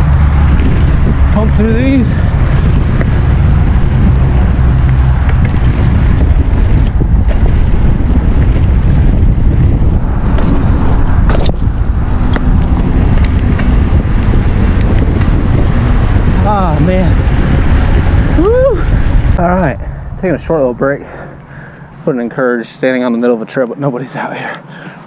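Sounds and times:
bike clicks and rattles: 0.0 - 16.3
wind buffeting microphone: 0.0 - 23.6
tyres rumbling on dirt trail: 0.0 - 25.0.

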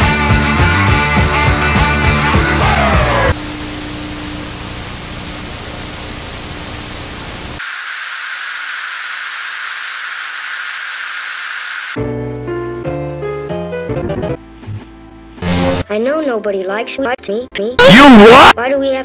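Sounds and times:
music: 0.0 - 3.4, 12.0 - 19.0
tv static hiss: 3.4 - 12.0, 15.4 - 15.8, 17.8 - 18.6.

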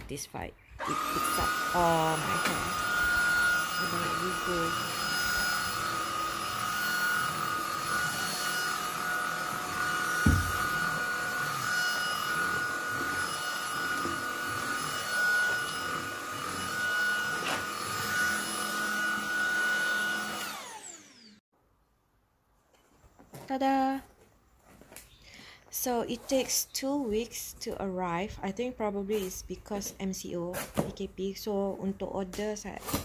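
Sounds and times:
stick vacuum whining: 0.8 - 21.4
short thump: 10.2 - 10.6.

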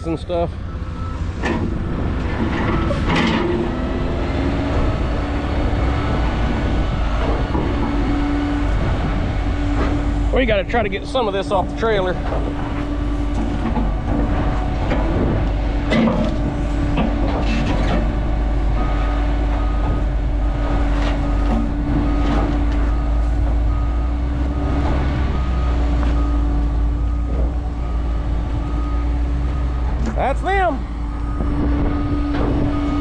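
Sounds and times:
diesel engine running: 0.0 - 33.0
reversing alarm beeping: 0.5 - 1.4, 2.6 - 3.1, 3.7 - 7.2, 18.1 - 33.0
knocks and clatter: 1.4 - 3.8, 12.2 - 18.2.

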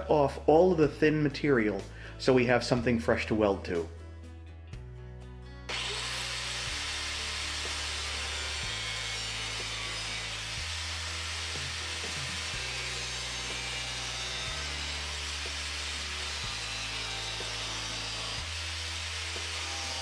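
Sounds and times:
angle grinder cutting sheet steel: 5.7 - 20.0.

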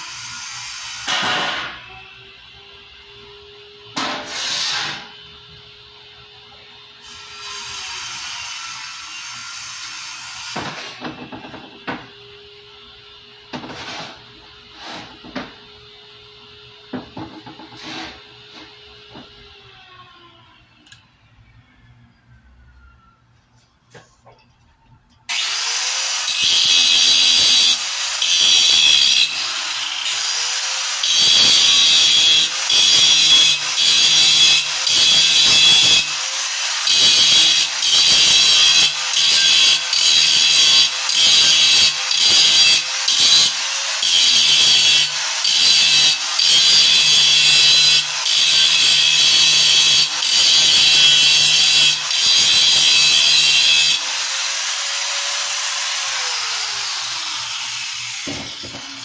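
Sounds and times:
power tool cutting: 0.0 - 2.3, 25.3 - 59.0.

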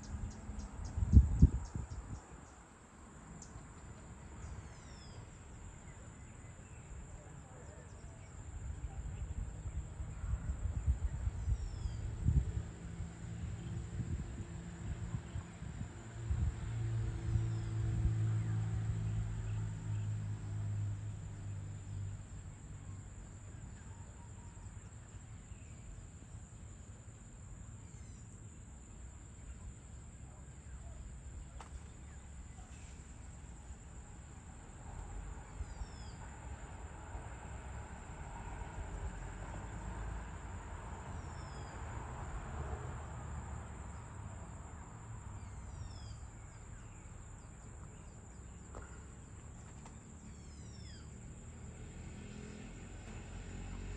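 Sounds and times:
insects droning: 0.0 - 53.9
bird calls: 45.4 - 51.2.

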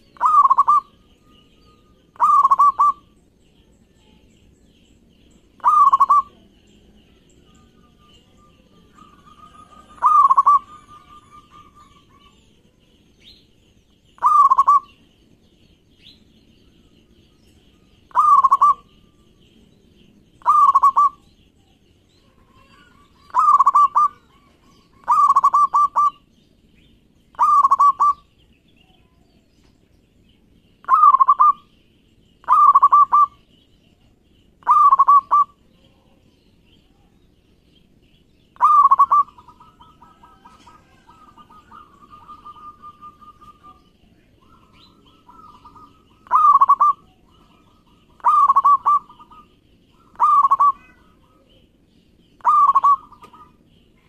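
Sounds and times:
dove cooing: 0.0 - 1.0, 2.1 - 3.2, 5.6 - 6.4, 8.6 - 12.4, 14.2 - 15.0, 18.1 - 19.0, 20.4 - 21.2, 22.6 - 26.2, 27.3 - 28.3, 30.8 - 31.6, 32.4 - 33.4, 34.6 - 35.6, 38.6 - 51.5, 52.4 - 53.6.

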